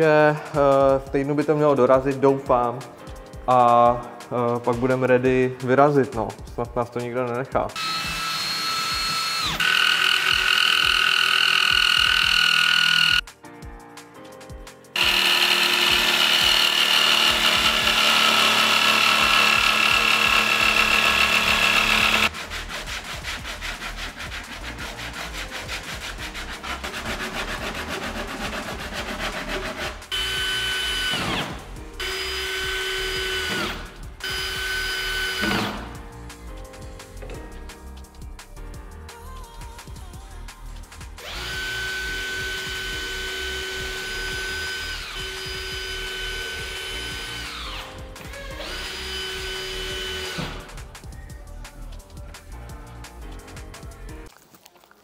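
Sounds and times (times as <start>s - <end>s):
background music with steady beat: 0.0s - 54.3s
cordless drill whining: 7.8s - 13.2s, 15.0s - 22.3s, 30.1s - 35.9s, 41.2s - 50.7s
hand sander on wood: 7.8s - 13.2s, 15.0s - 36.0s, 41.2s - 50.6s.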